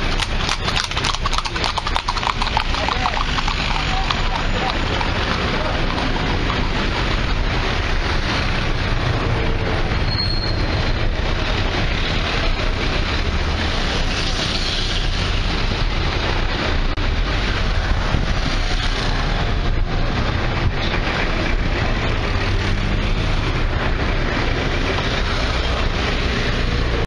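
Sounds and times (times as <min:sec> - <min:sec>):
city street traffic: 0:00.0 - 0:27.0
high squeak: 0:10.0 - 0:10.9.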